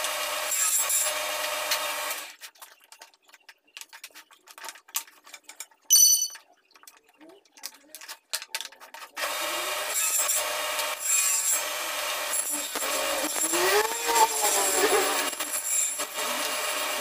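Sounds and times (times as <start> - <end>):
table saw cutting wood: 0.0 - 2.3, 9.2 - 17.0.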